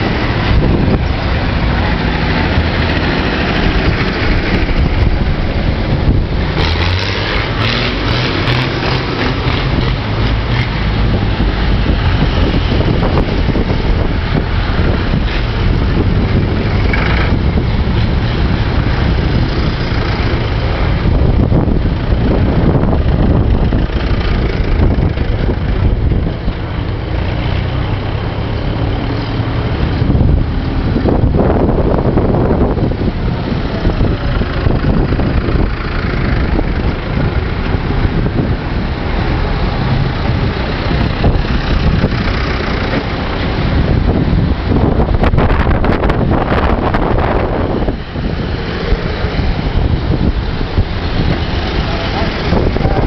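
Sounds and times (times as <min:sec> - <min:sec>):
tractors driving past: 0:00.0 - 0:53.0
wind buffeting microphone: 0:00.0 - 0:53.0.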